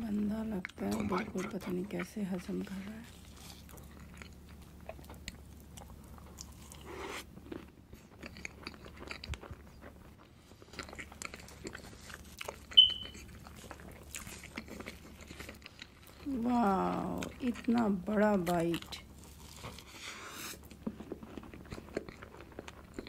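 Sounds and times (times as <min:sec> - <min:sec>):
wet mouth clicks and chewing: 0:03.3 - 0:16.3, 0:18.8 - 0:23.0
short high squeak: 0:12.8 - 0:13.2.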